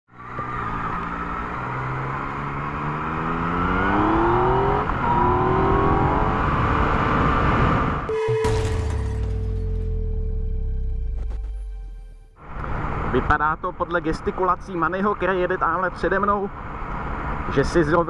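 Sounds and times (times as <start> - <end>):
motorcycle engine accelerating: 0.2 - 8.1
held tone: 8.1 - 12.6
crash-like effect: 8.1 - 12.9.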